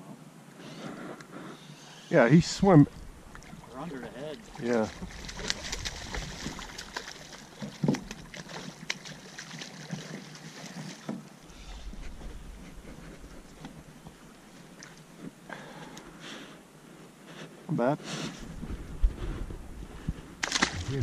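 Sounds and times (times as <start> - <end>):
fish splashing in water: 4.4 - 11.9, 20.4 - 21.0.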